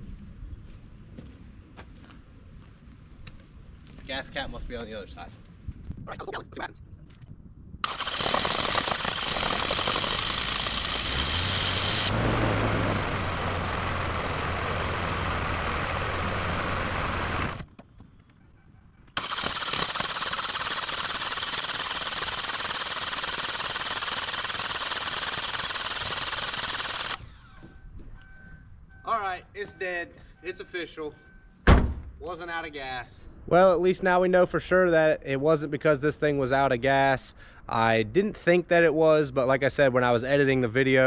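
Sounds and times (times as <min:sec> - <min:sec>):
starter motor cranking: 0:07.8 - 0:17.6, 0:19.2 - 0:27.7
car engine running rough: 0:07.9 - 0:17.6.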